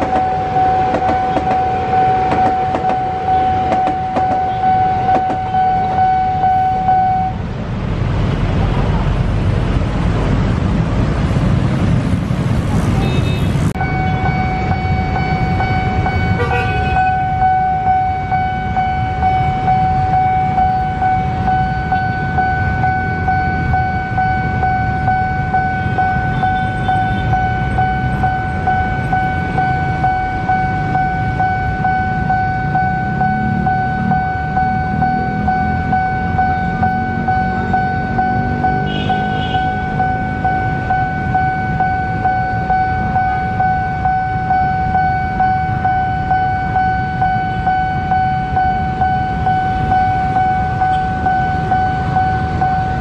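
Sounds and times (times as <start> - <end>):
level crossing alarm tone: 0.0 - 7.4, 13.7 - 53.0
road traffic rumble: 0.0 - 53.0.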